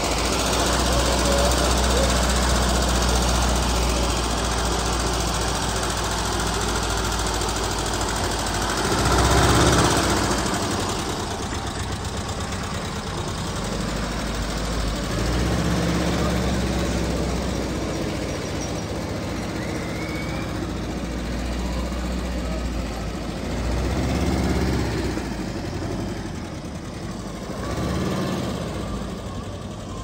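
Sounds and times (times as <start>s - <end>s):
van engine idling and revving: 0.0s - 30.0s.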